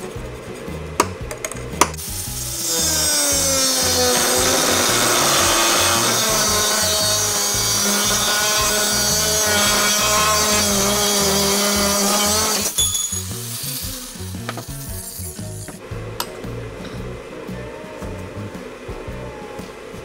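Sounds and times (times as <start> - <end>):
angle grinder cutting steel: 2.0 - 15.8.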